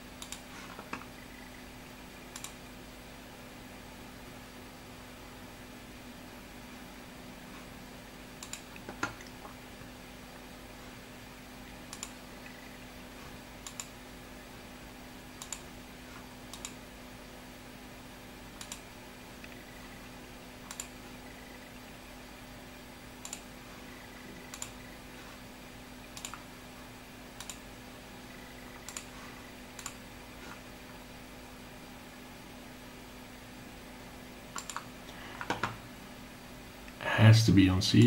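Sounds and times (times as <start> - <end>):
steady low hum: 0.0 - 38.0
computer mouse clicking: 0.2 - 1.6, 2.3 - 2.6, 8.4 - 9.3, 11.8 - 12.8, 13.6 - 14.0, 15.4 - 15.7, 16.5 - 16.8, 18.6 - 20.0, 20.6 - 21.6, 23.2 - 25.0, 26.1 - 26.5, 27.4 - 27.7, 28.3 - 29.2, 29.8 - 30.6, 34.5 - 35.8.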